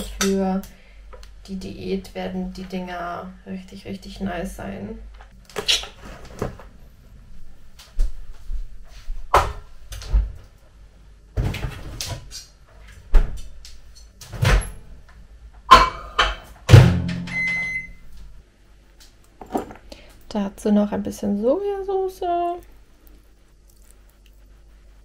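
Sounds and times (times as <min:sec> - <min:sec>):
kitchen items knocking and clunking: 0:15.7 - 0:17.6, 0:19.4 - 0:19.9.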